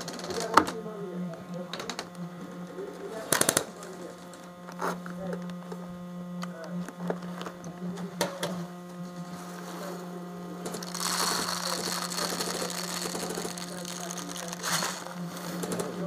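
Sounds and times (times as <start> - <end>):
steady low hum: 0.0 - 16.0
rattle of plastic pellets: 10.7 - 15.9.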